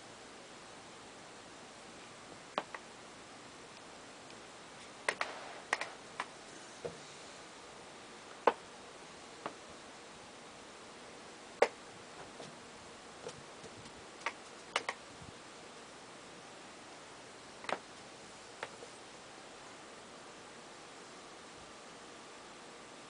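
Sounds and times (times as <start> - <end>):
low steady hiss: 0.0 - 23.0
sharp clicks and light knocks: 5.1 - 7.0, 13.2 - 15.0, 17.6 - 17.9.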